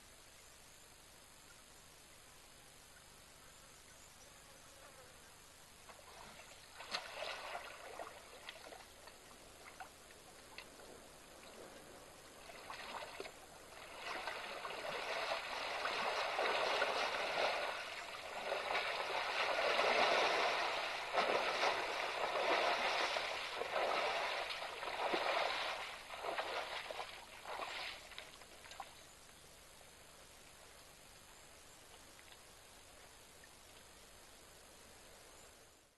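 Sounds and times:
elephant splashing in water: 6.0 - 10.0, 12.3 - 28.8.

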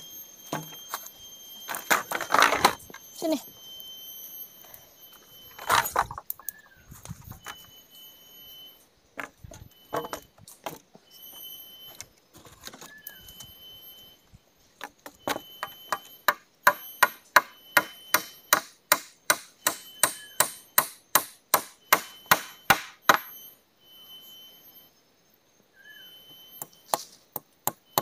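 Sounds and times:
sharp strikes on wood: 15.3 - 23.3.

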